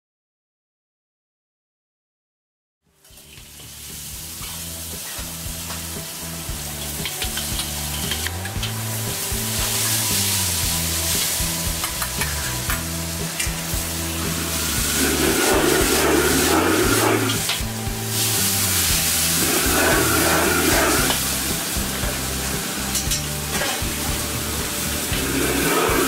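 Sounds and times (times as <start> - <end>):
food sizzling in wok: 2.9 - 26.0
background music with bassline: 3.0 - 26.0
metal ladle scraping wok: 13.4 - 26.0.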